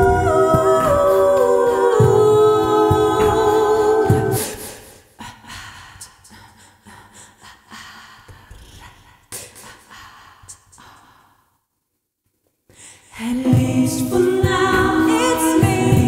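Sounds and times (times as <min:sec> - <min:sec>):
quiet breaths: 0:04.4 - 0:13.4
soft mouth noises: 0:08.2 - 0:11.1.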